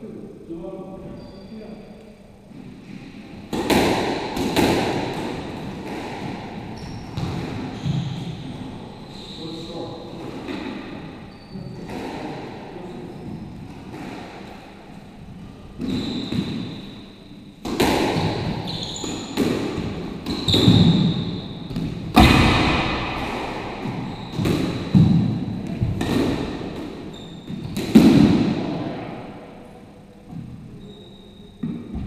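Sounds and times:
squash ball hitting rackets and walls: 3.3s - 8.8s, 10.1s - 29.5s, 31.6s - 32.0s
shoes squeaking on hardwood floor: 6.6s - 9.7s, 15.8s - 16.9s, 18.4s - 21.8s, 23.8s - 25.2s, 27.1s - 28.0s, 30.4s - 32.0s.

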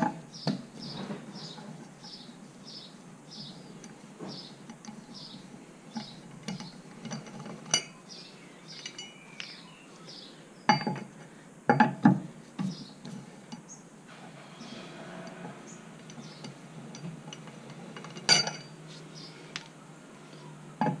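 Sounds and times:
wheel brace clinking on wheel nuts: 3.4s - 8.0s, 8.7s - 9.6s, 10.7s - 11.1s, 15.4s - 18.8s
wheel nut set on concrete: 15.2s - 18.8s.

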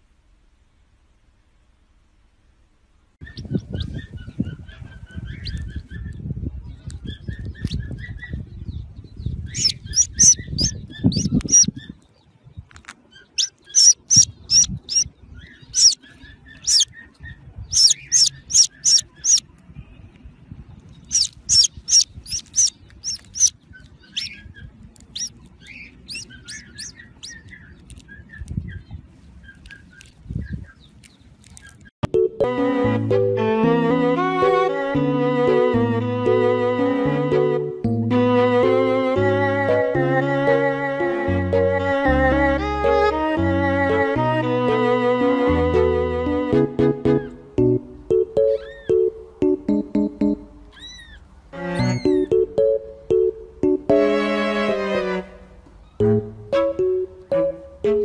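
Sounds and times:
chick peeping: 3.2s - 12.1s, 13.2s - 19.5s, 20.8s - 31.9s, 47.1s - 52.5s.

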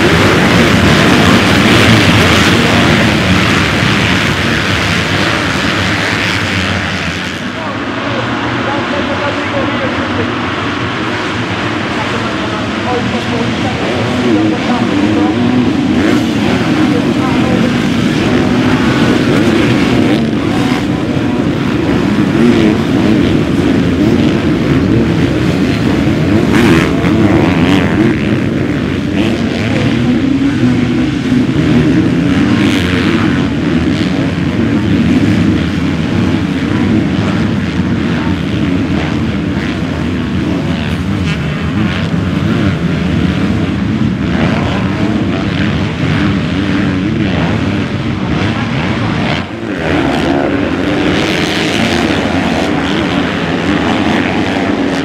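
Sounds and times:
motocross bike engines revving: 0.0s - 55.0s.

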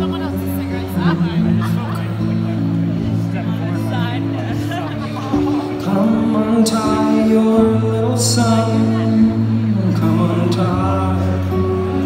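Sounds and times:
acoustic guitar: 0.0s - 12.0s
man singing long notes: 5.6s - 12.0s.

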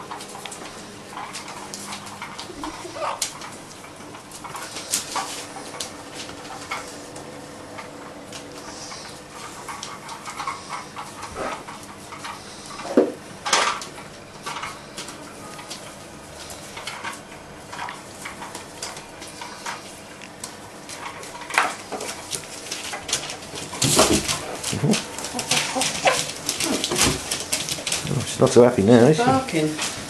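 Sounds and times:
puppies scrabbling on newspaper: 0.0s - 30.0s
puppy calls: 1.5s - 3.7s, 23.4s - 28.2s.

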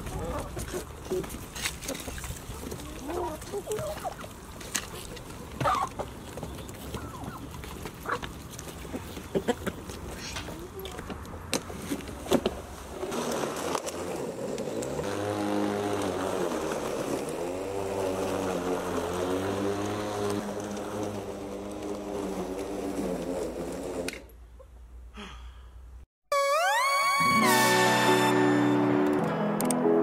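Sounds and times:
electric lawn mower running: 12.9s - 24.3s, 26.7s - 29.2s.

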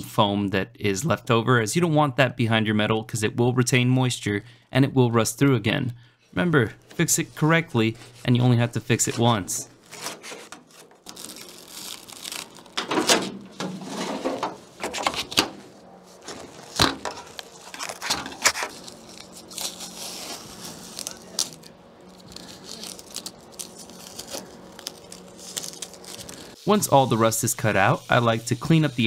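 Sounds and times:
foam filler crunching and tearing: 8.9s - 29.0s.

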